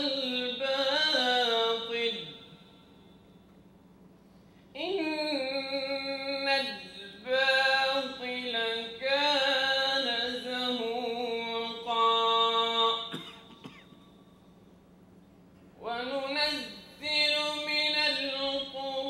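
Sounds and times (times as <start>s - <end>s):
person singing unaccompanied: 0.0s - 2.6s, 4.8s - 13.2s, 15.8s - 19.0s.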